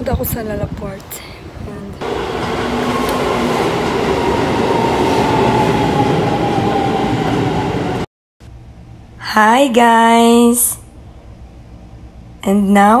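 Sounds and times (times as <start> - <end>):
train motor whine: 2.0 - 8.1
train wheels rumbling on rails: 2.0 - 8.1.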